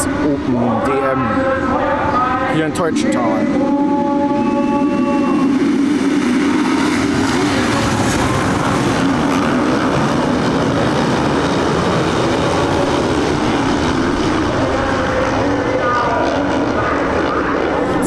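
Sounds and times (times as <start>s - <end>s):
motocross bikes accelerating: 5.5s - 18.0s.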